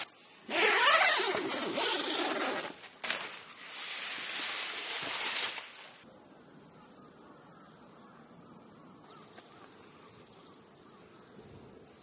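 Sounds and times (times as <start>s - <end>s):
tent zipper pulled open: 0.0s - 5.8s.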